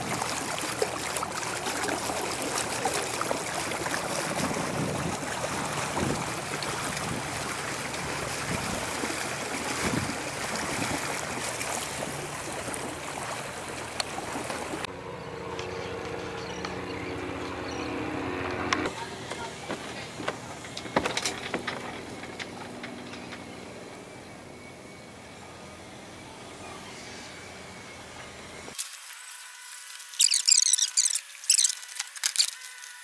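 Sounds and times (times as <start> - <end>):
water splashing and lapping: 0.0 - 15.0, 15.6 - 24.1
low steady hum: 0.0 - 28.8.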